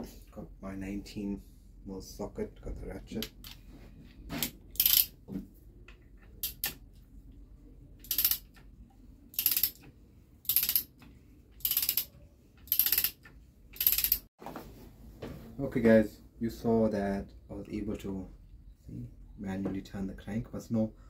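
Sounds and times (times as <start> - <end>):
hand ratchet clicking: 4.4 - 5.1, 6.4 - 6.8, 8.0 - 8.6, 9.4 - 11.0, 11.6 - 14.3.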